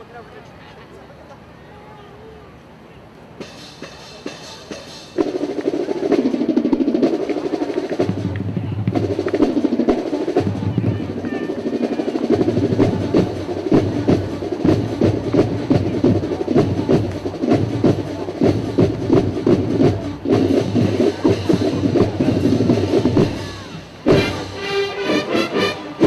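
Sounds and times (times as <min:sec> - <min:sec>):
marching snare drums: 0:03.4 - 0:26.0
loud brass chord: 0:24.0 - 0:26.0.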